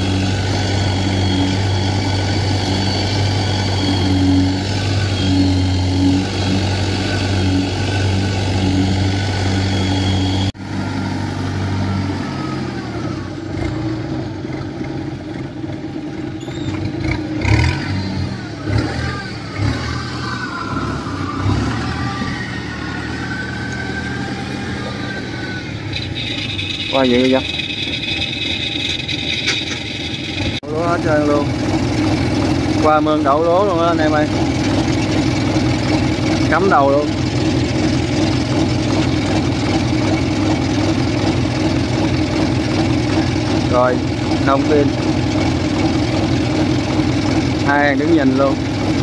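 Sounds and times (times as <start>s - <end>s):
tracked machine engine running: 0.0s - 49.0s
knocks and clanks: 26.2s - 30.6s.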